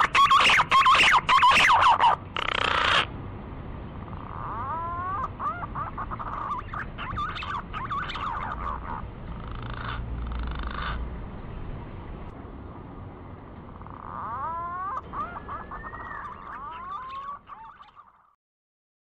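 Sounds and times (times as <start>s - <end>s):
pigeon calls: 0.0s - 3.1s, 4.1s - 11.0s, 13.7s - 18.3s
whistled bird notes: 14.9s - 18.2s.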